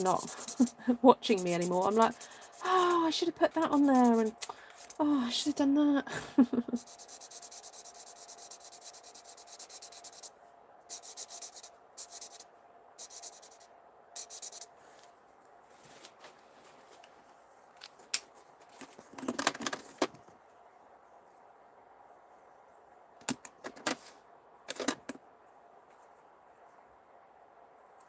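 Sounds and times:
marker scratching on paper: 0.0 - 5.0, 6.8 - 10.3, 10.9 - 12.4, 13.0 - 14.7.

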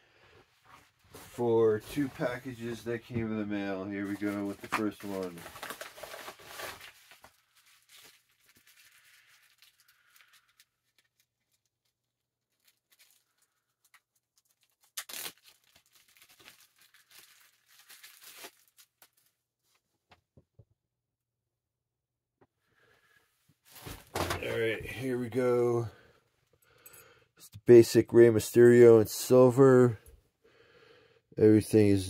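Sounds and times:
plastic packaging crinkling: 3.9 - 19.3
plastic packaging tearing: 4.1 - 19.3.

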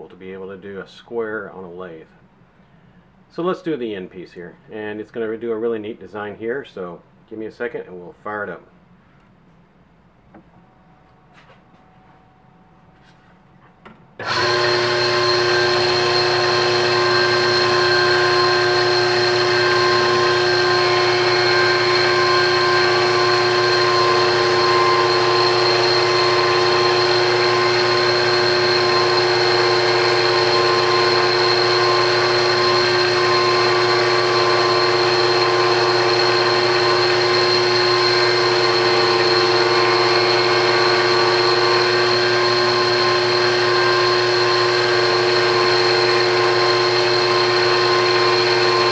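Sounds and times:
lathe motor whining: 14.2 - 48.9.

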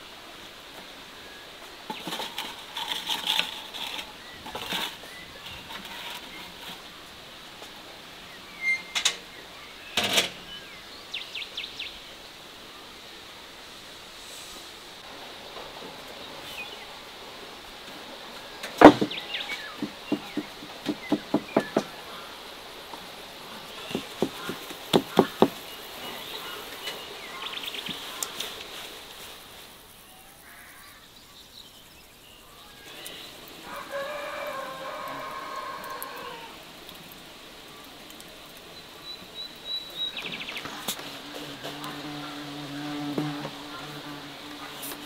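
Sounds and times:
sharp knocks: 18.8 - 19.2, 19.8 - 22.0, 23.9 - 25.6
rooster crowing: 33.6 - 36.6.

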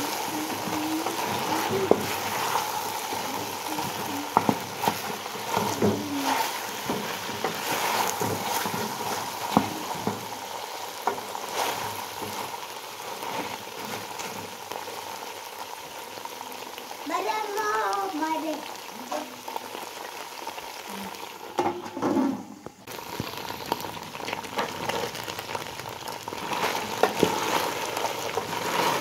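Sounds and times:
meat sizzling in a pot: 0.0 - 29.0
wooden spoon knocking pot: 3.4 - 10.3.

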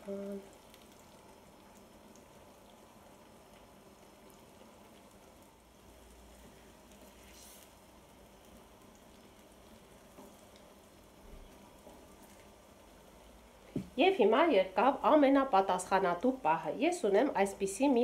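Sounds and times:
faint sizzling in a pan: 0.0 - 18.0.

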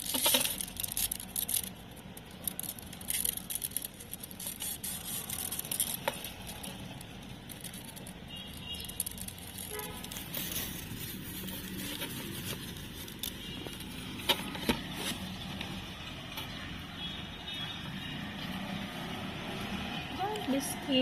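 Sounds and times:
hamsters scrabbling over food pellets: 0.0 - 15.5.

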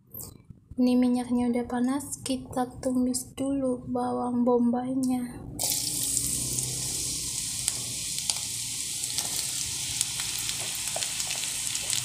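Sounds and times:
oil popping: 5.6 - 12.0
onions sizzling in oil: 5.6 - 12.0.

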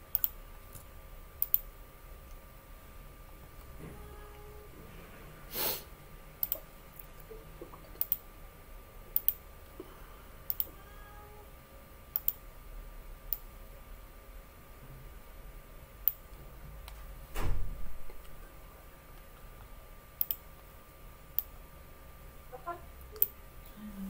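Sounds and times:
faint steady hum: 0.0 - 24.0
computer clicks: 0.1 - 0.4, 1.4 - 1.7, 6.4 - 6.6, 8.0 - 8.2, 9.1 - 9.4, 10.5 - 10.7, 12.1 - 12.4, 20.2 - 20.4.

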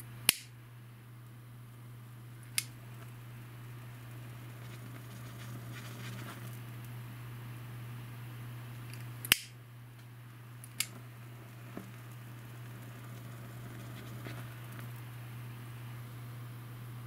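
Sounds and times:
lighter clicking: 0.3 - 0.5, 9.2 - 9.5
camcorder motor hum: 10.6 - 16.0.

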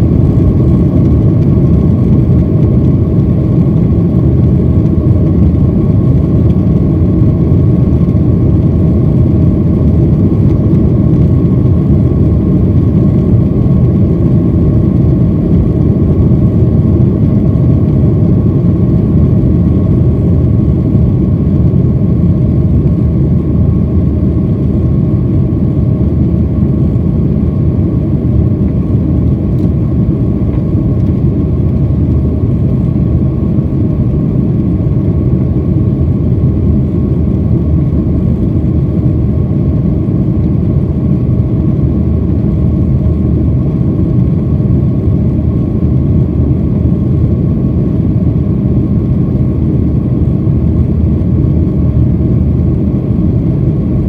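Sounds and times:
faint steady whine: 0.0 - 54.0
jet engines rumbling: 0.0 - 54.0.

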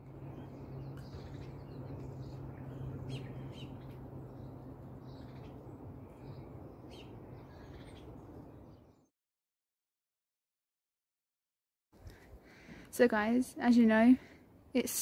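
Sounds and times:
low background hum: 0.0 - 9.0
small birds chirping: 0.0 - 9.1.

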